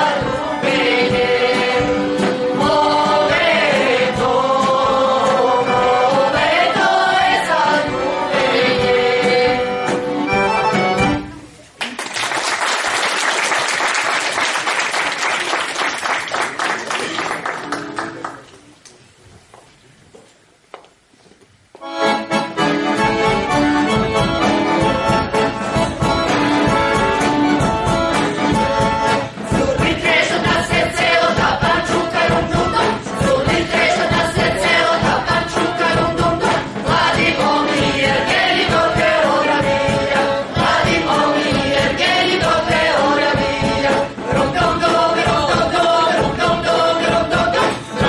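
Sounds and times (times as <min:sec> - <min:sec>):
mixed choir singing: 0:00.0 - 0:10.3, 0:29.1 - 0:48.0
accordion folk music: 0:00.0 - 0:11.6, 0:21.8 - 0:48.0
audience applause: 0:11.8 - 0:18.6.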